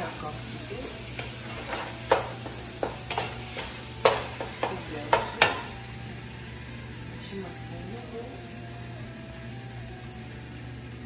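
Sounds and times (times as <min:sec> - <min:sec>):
greens sizzling in pot: 0:00.0 - 0:11.0
wooden spatula knocking on pot: 0:01.2 - 0:05.7.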